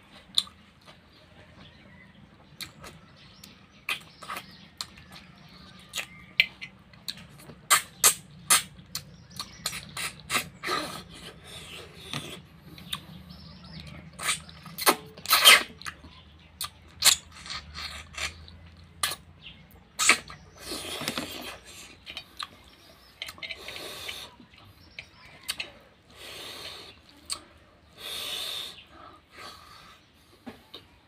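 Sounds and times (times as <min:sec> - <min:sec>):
chewing: 0:00.1 - 0:28.0
wet sucking and slurping: 0:07.6 - 0:13.2, 0:14.1 - 0:15.9, 0:19.9 - 0:30.0.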